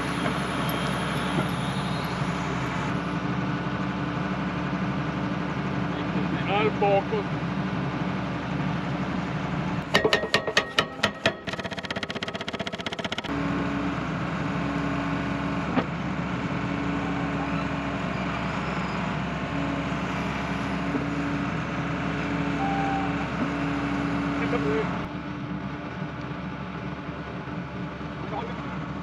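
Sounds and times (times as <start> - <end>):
hydraulic whine: 0.0 - 3.2, 16.7 - 25.1
excavator engine running: 0.0 - 29.0
hydraulic breaker hammering steel: 9.8 - 13.3.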